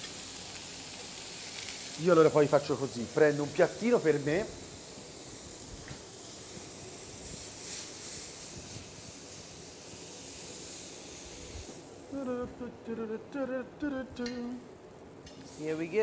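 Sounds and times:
food sizzling in a frying pan: 0.0 - 12.3, 15.3 - 16.0
person speaking: 12.1 - 14.7.

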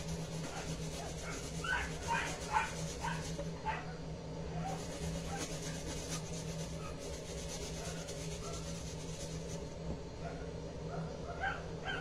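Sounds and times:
onion rasping on metal grater: 0.0 - 3.5, 4.6 - 9.6
steady low hum: 0.0 - 12.0.

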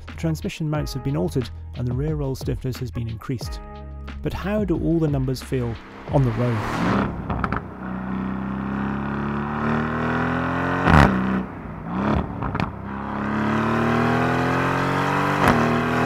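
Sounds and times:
sports car accelerating: 5.4 - 16.0
exhaust crack on upshift: 7.2 - 14.1.

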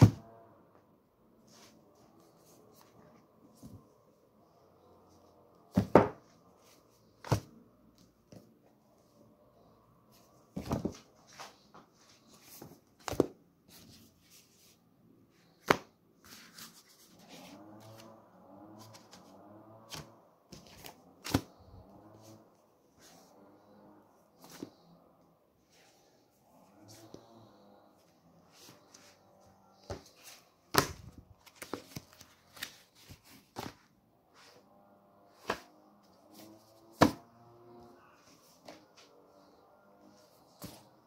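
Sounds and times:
sharp knocks of books: 0.0 - 0.2, 5.7 - 6.2, 7.2 - 7.6, 10.6 - 11.0, 13.0 - 13.4, 30.7 - 31.9, 36.9 - 37.2
paper rustling: 29.8 - 34.6.

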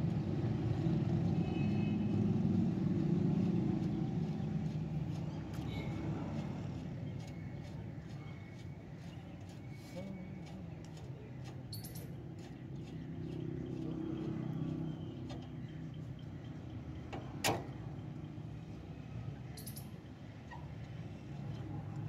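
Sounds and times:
vehicle engine hum: 0.0 - 22.0
bird chirps: 11.7 - 12.1, 19.5 - 20.0.

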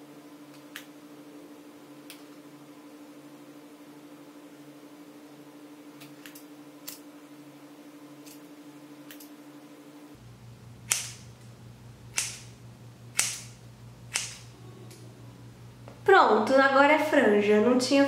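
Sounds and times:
scissors snipping hair: 10.9 - 11.3, 12.1 - 12.6, 13.2 - 15.0.

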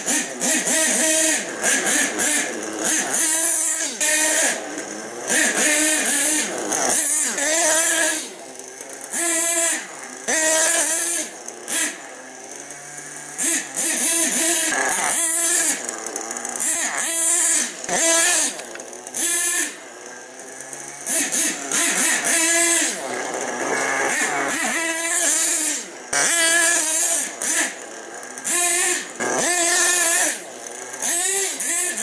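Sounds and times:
small two-stroke engine revving: 0.0 - 32.0.

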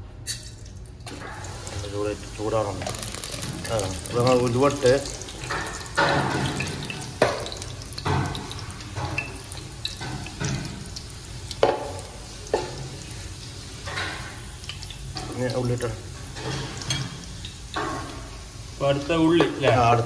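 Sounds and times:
spice seeds sizzling in oil: 1.5 - 19.8.

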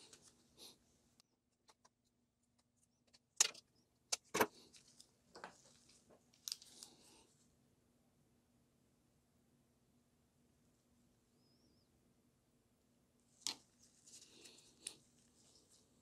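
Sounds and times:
gloved hands rustling: 13.4 - 16.0.

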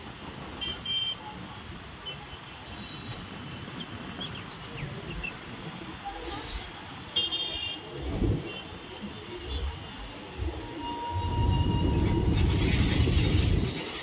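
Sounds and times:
road traffic: 0.0 - 14.0
vehicle horn honking: 0.6 - 1.2.

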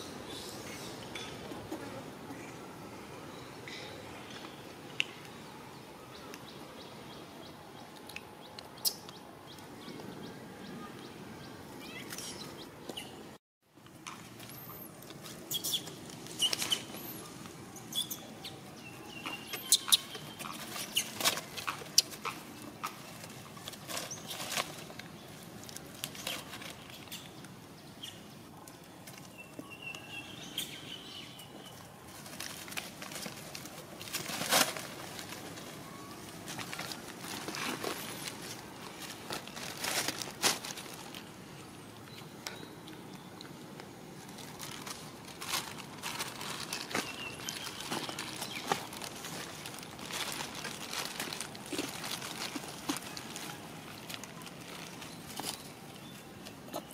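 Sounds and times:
dry leaves rustling and crackling: 18.7 - 27.4, 31.0 - 41.4, 44.1 - 56.9.

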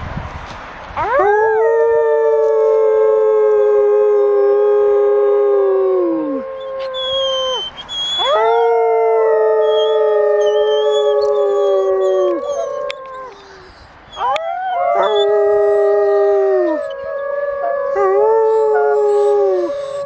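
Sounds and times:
people imitating howls: 1.0 - 7.6, 8.2 - 20.0
wolf howling: 1.0 - 20.0.

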